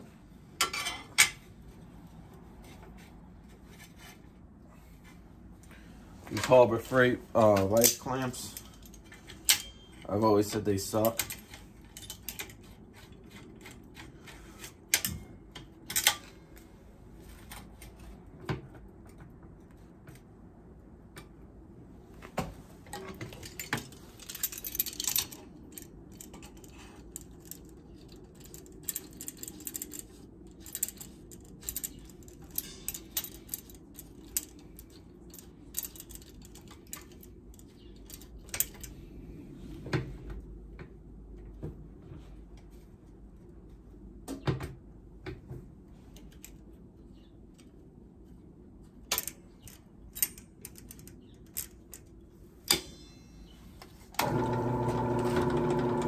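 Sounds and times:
metal tools clicking and clinking: 0.6s - 1.4s, 6.3s - 16.4s, 22.9s - 39.0s, 49.1s - 53.7s
metal clanks: 31.7s - 34.6s, 52.7s - 53.7s.

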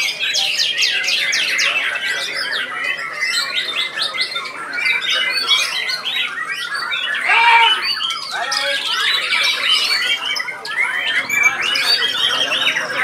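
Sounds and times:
birds singing whistled notes: 0.0s - 13.0s.

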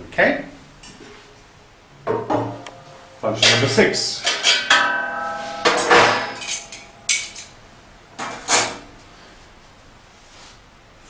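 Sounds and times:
metal pans clanking: 2.1s - 7.6s.

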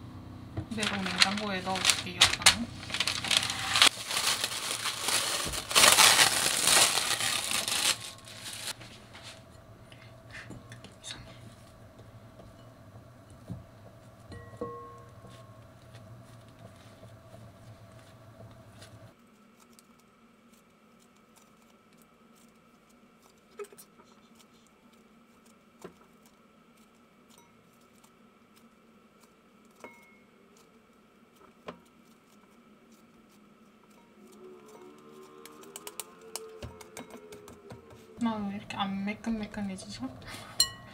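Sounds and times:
dough being stretched by hand: 0.7s - 9.3s.

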